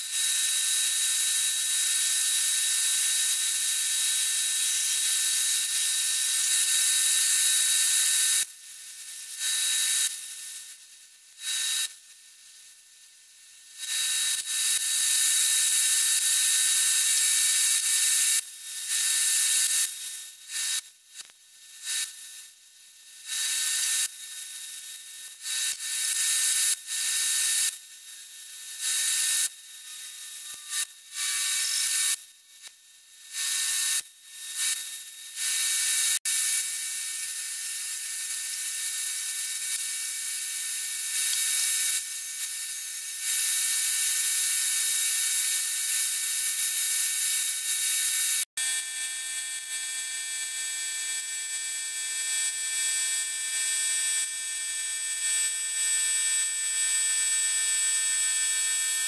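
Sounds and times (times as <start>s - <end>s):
angle grinder whining: 29.8s - 32.2s.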